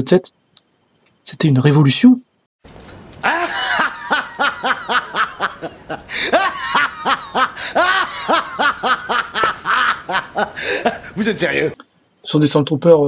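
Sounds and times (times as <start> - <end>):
man laughing heartily: 3.2 - 11.2.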